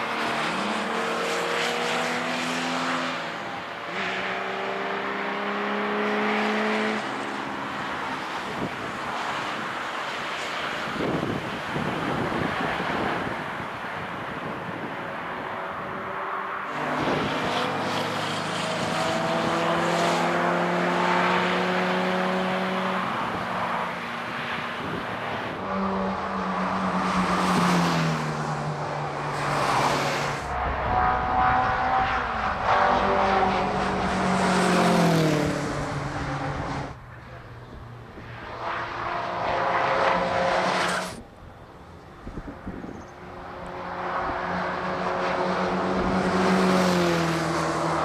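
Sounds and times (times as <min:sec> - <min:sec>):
racing cars driving past: 0:00.0 - 0:48.0
wind rumble on microphone: 0:10.8 - 0:16.1, 0:16.8 - 0:17.6, 0:30.5 - 0:33.8, 0:41.2 - 0:44.8.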